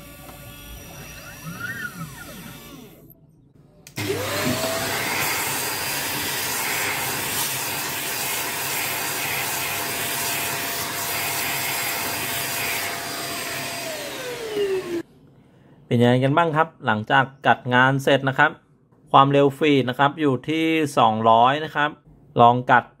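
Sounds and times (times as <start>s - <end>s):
handheld electric cleaner motor: 0.0s - 3.1s, 4.0s - 15.0s
stepper motors whining: 0.0s - 3.2s, 12.9s - 15.0s.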